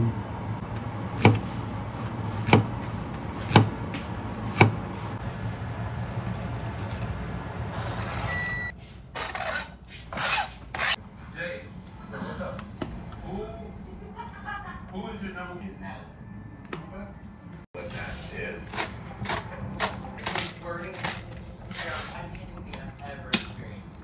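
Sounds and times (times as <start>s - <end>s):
knife chopping on cutting board: 1.2s - 1.6s, 2.3s - 4.9s, 18.7s - 20.0s
short high beep: 8.2s - 8.7s.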